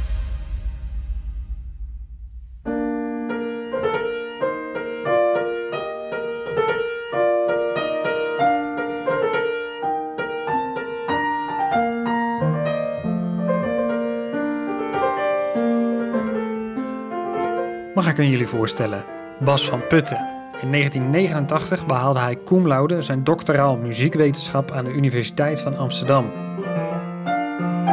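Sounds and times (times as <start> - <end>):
low rumble: 0.0 - 2.8
grand piano melody: 2.6 - 27.9.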